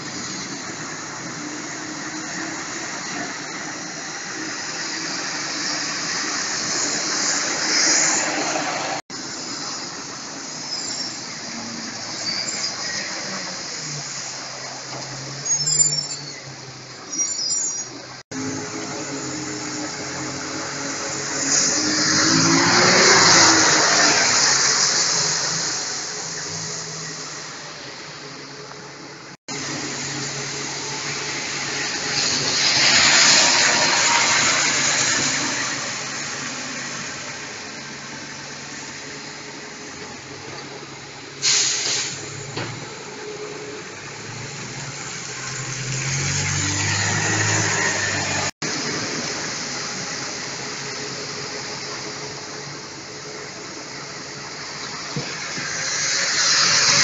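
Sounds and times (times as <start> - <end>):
bus engine humming: 0.0 - 57.0
tyres hissing on wet road: 0.0 - 57.0.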